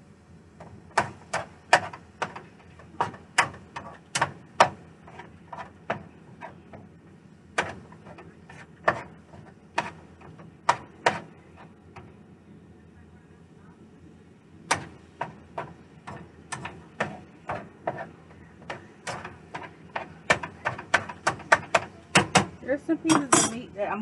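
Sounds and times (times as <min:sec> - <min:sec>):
utensil scraping a skillet: 0:00.9 - 0:06.9, 0:07.6 - 0:11.8, 0:14.7 - 0:23.6.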